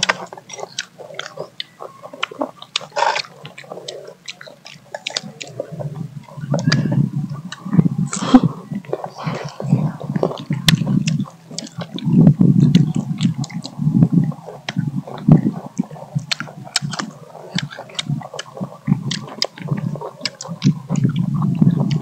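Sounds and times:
wet chewing: 0.0 - 22.0.

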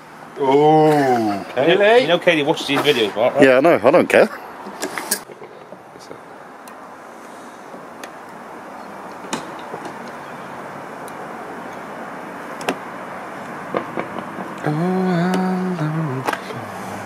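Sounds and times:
steady outdoor hiss: 0.0 - 17.0
person humming: 14.6 - 17.0.

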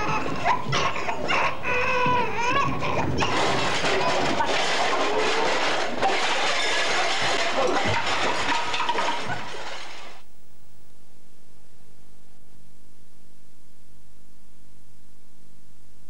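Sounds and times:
clattering and rustling: 0.0 - 10.2
tape hiss: 5.0 - 16.0.

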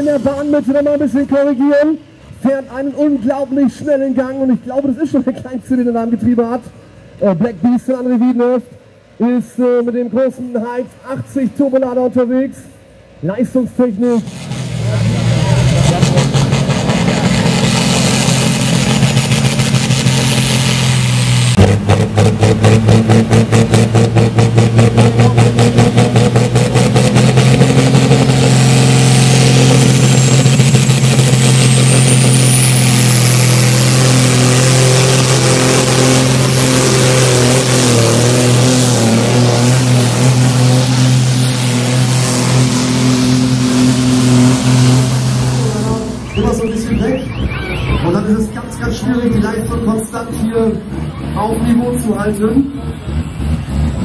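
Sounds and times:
fast engine pulsing: 14.0 - 54.0
tractor engine running flat out: 14.0 - 54.0
turbo whistle climbing in pitch: 45.6 - 48.4.

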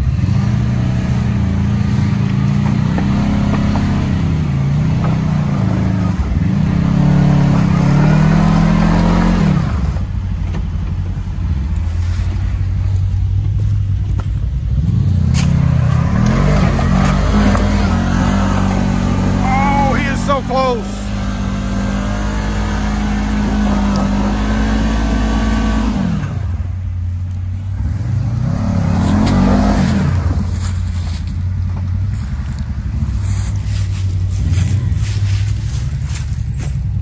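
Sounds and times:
off-road vehicle engine revving: 0.0 - 37.0.

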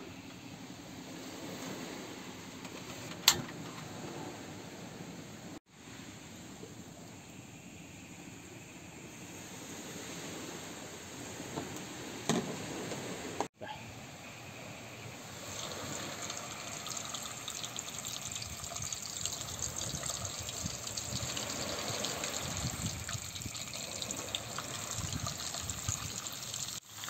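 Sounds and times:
hot oil sizzling and crackling: 15.2 - 27.0.

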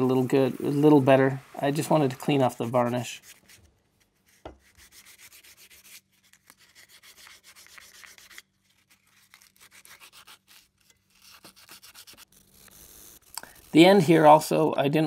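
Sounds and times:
hand sanding steel: 4.6 - 6.0.

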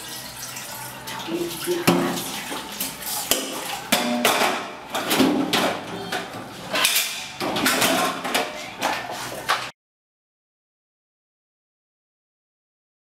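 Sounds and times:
metal pots clanking in a sink: 0.0 - 5.9, 6.7 - 8.6.

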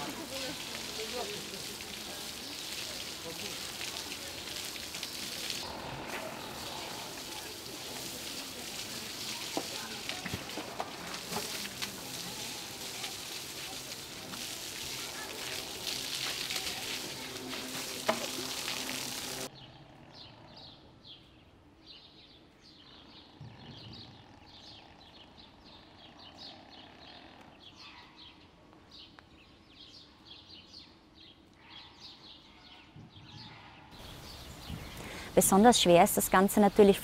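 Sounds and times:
water spraying hiss: 0.0 - 19.5, 34.0 - 37.0
small birds chirping: 0.2 - 17.9, 18.7 - 37.0.

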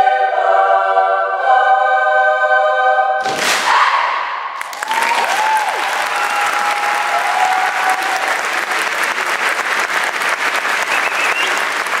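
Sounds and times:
large audience applauding: 4.6 - 12.0.

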